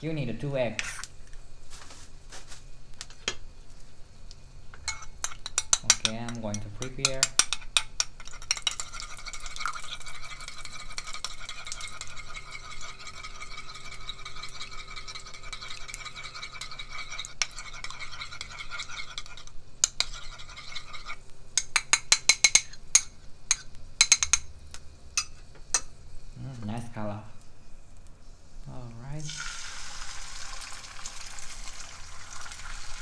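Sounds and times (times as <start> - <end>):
spoon knocking against bowl: 4.8 - 8.9, 21.6 - 24.5
spoon beating eggs in bowl: 4.8 - 24.5.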